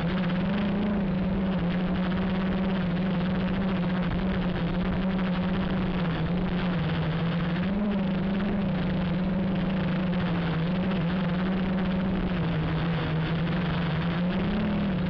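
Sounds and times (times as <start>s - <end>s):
quadcopter motors buzzing: 0.0s - 15.0s.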